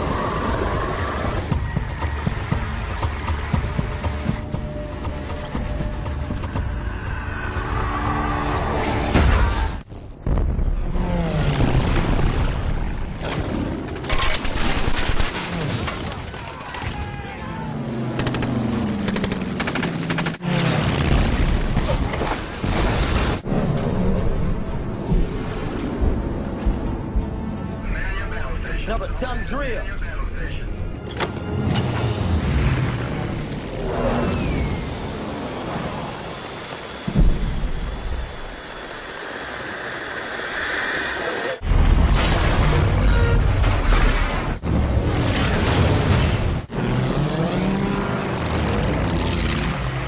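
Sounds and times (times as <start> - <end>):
music: 0.0 - 9.8, 23.8 - 32.6
booms: 9.1 - 13.5.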